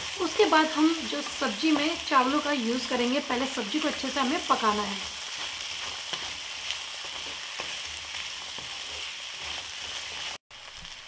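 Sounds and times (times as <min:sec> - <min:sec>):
vegetables sizzling in oil: 0:00.0 - 0:11.0
spatula scraping pan: 0:04.5 - 0:10.4.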